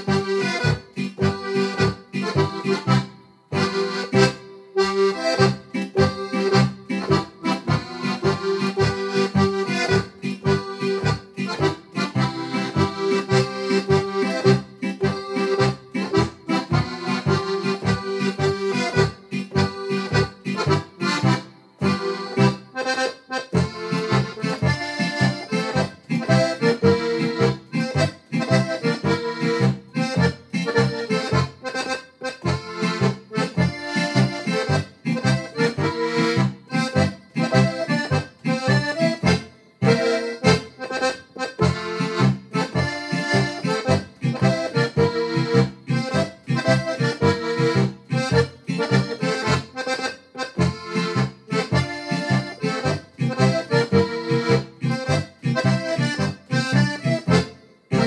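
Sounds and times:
accordion playing folk tune: 0:00.0 - 0:58.0.

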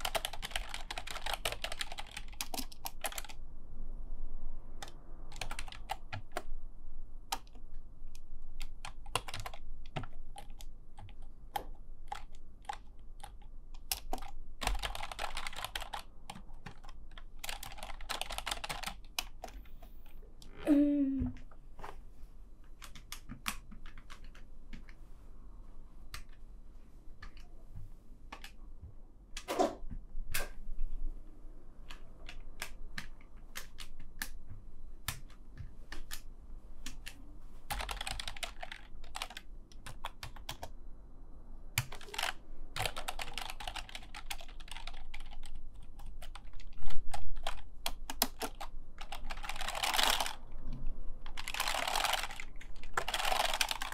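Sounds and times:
keyboard typing: 0:00.0 - 0:03.4, 0:04.8 - 0:06.5, 0:07.3 - 0:20.5, 0:22.7 - 0:25.0, 0:31.9 - 0:34.4, 0:36.9 - 0:40.7, 0:41.8 - 0:50.5, 0:51.2 - 0:53.9.

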